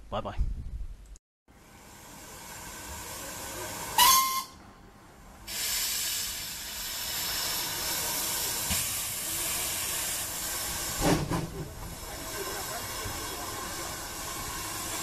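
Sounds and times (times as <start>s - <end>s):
steam hissing: 1.6s - 4.5s, 5.4s - 15.0s
steam whistle: 3.9s - 4.6s.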